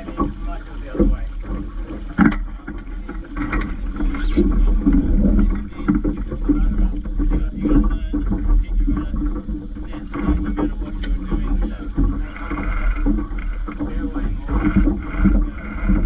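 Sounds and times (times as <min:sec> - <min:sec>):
water rushing along hull: 0:00.0 - 0:16.0
wind buffeting microphone: 0:00.0 - 0:16.0.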